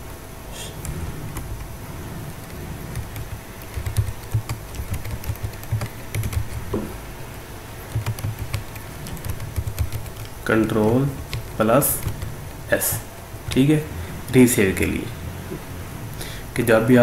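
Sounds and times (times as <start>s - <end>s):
keyboard keys clicking: 2.4s - 6.9s, 7.9s - 10.4s, 11.2s - 12.7s.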